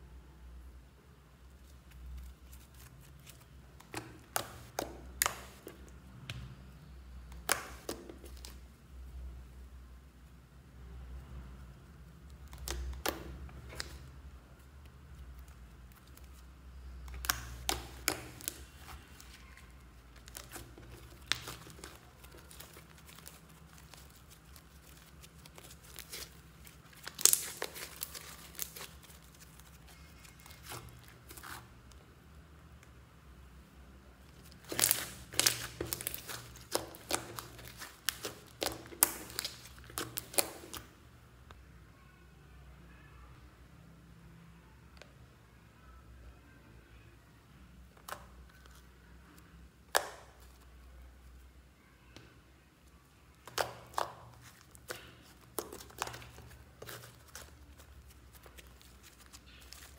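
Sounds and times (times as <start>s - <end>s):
slime clicking and popping: 3.8s - 6.5s, 7.3s - 8.6s, 12.3s - 14.0s, 17.0s - 19.3s, 20.2s - 29.7s, 34.5s - 40.9s, 49.8s - 50.5s, 53.4s - 57.4s.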